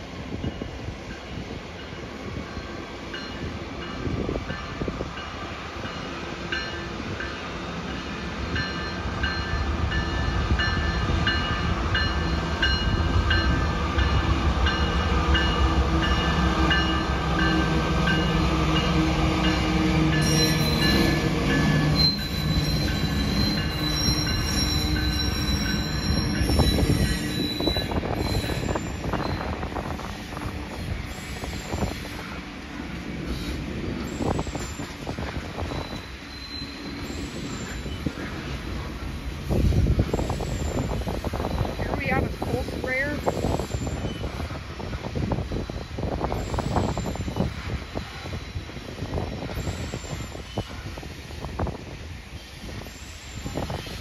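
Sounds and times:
diesel locomotive engine rumbling: 0:00.0 - 0:54.0
train cars rolling: 0:00.0 - 0:54.0
high-pitched wheel squeal: 0:21.9 - 0:29.5.

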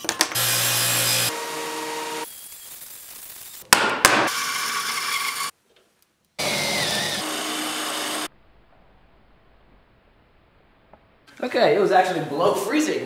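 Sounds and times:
electric drill boring: 0:00.3 - 0:03.6, 0:04.3 - 0:05.5, 0:06.4 - 0:08.3
steady tool noise: 0:00.3 - 0:03.7, 0:06.4 - 0:08.3.

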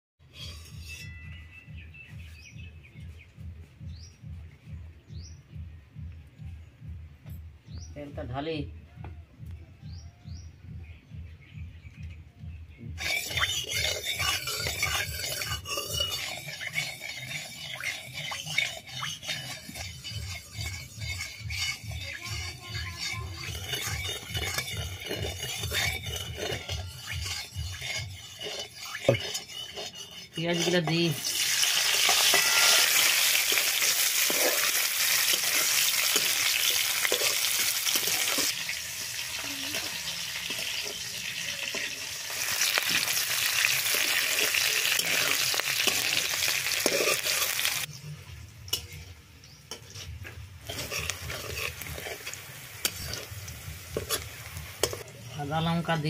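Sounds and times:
metal ladle scraping a wok: 0:00.2 - 0:01.6, 0:13.0 - 0:56.0
birds chirping: 0:00.5 - 0:31.2.

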